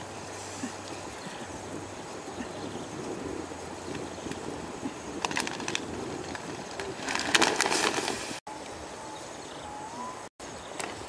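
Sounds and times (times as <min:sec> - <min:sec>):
fire steady hiss: 0:00.0 - 0:09.0
fire crackling clicks: 0:03.8 - 0:08.4.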